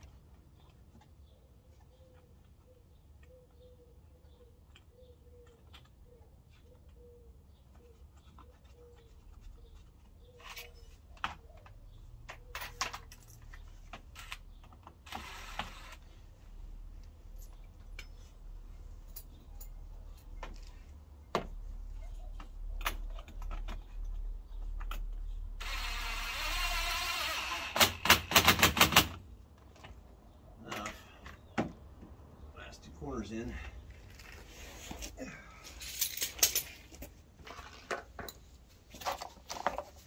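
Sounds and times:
tools and hardware clinking: 10.4 - 15.9, 17.3 - 20.8, 35.6 - 40.0
cordless power driver running: 15.1 - 16.0, 25.6 - 28.3.

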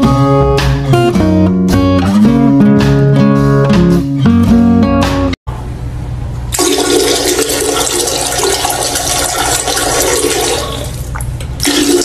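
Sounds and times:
toilet flushing: 6.5 - 12.0.

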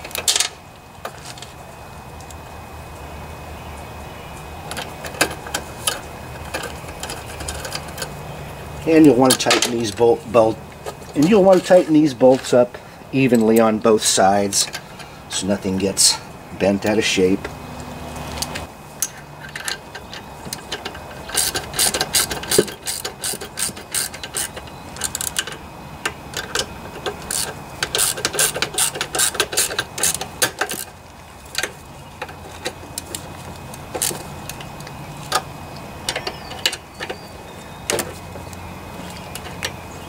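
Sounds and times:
socket ratchet clicking: 19.6 - 25.6, 26.3 - 30.9.

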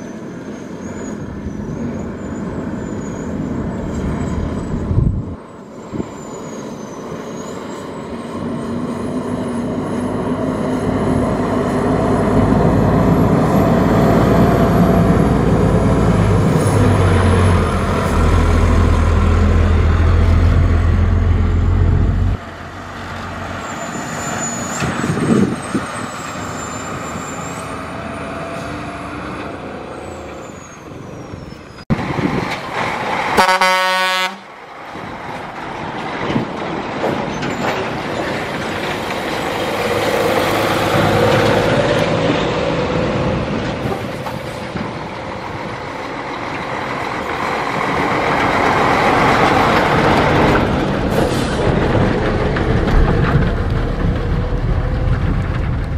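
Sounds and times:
dump trucks diesel rumble: 0.0 - 55.9
truck horn blast: 33.4 - 34.5.

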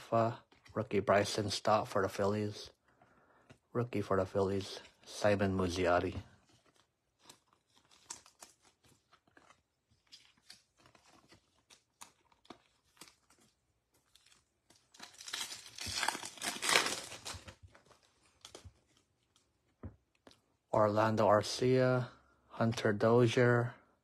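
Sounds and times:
foil wrapper crinkling and tearing: 6.3 - 19.5.

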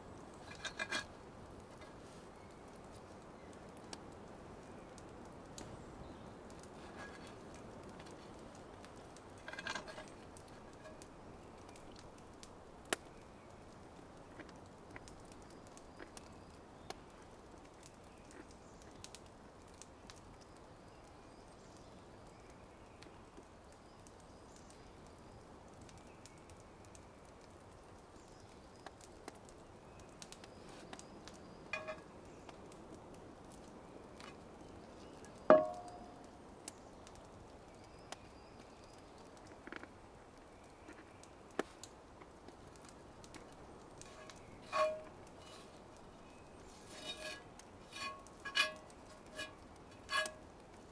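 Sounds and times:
campfire crackling and popping: 0.0 - 50.9
soft steady hiss: 0.0 - 50.9
metal utensil clinking on frying pan: 31.8 - 32.0, 35.5 - 36.1, 44.1 - 45.7, 46.9 - 50.4.

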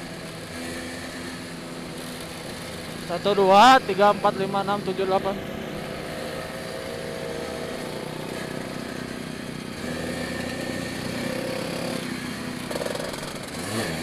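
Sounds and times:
other scooters nearby: 0.0 - 14.0
scooter engine running: 0.0 - 14.0.

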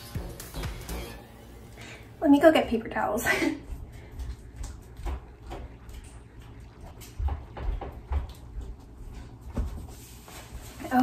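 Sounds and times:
footsteps on hard floor: 3.6 - 11.0.

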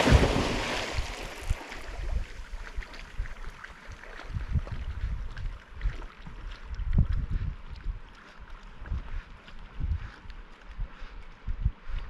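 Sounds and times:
dog splashing into water: 0.0 - 4.4
swimming splashing and lapping: 0.0 - 12.0
wind rumble on microphone: 0.0 - 12.0.

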